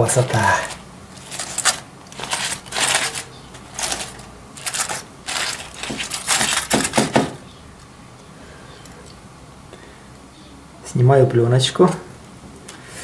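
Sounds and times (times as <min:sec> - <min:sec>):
foil and plastic film crinkling: 0:00.0 - 0:07.4.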